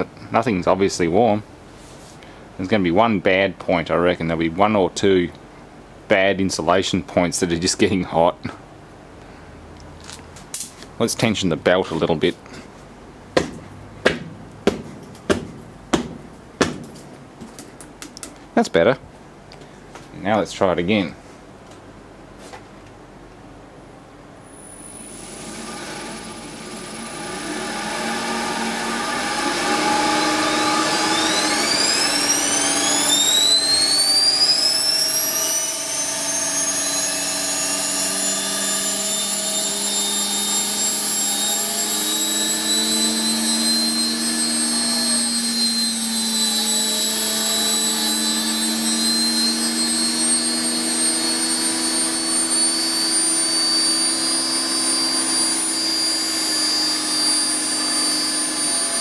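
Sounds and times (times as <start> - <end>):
generator high whine: 23.7 - 59.0
low motor hum: 24.9 - 57.2.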